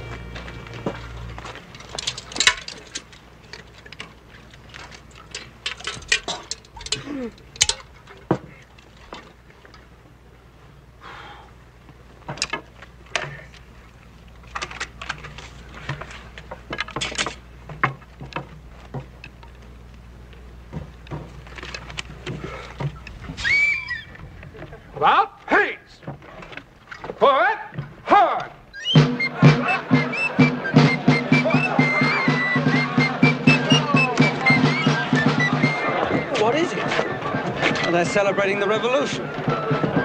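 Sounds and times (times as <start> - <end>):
low steady background hum: 0.0 - 40.0
tin cups and bottles clinking: 4.8 - 8.6.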